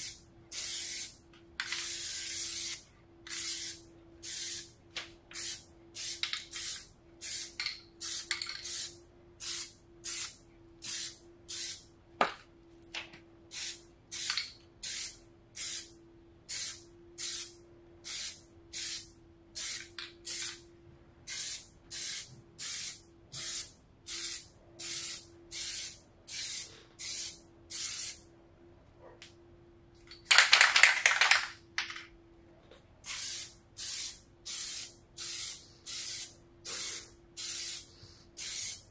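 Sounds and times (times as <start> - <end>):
aerosol can spraying: 33.1 - 38.8.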